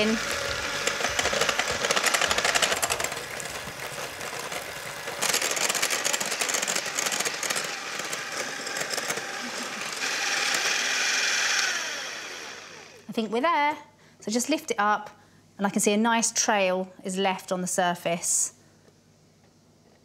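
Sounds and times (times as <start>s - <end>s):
electric hand mixer whirring: 0.0s - 13.1s.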